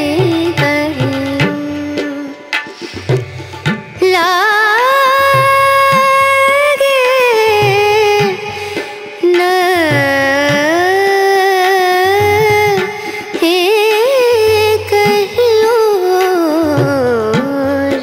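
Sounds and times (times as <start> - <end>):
low drum beats: 0.0 - 4.4.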